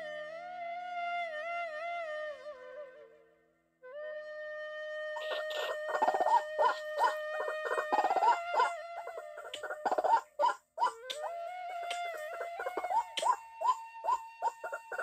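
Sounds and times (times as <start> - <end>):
flute-like background music: 0.0 - 15.0
bird calling rapidly: 5.2 - 15.0.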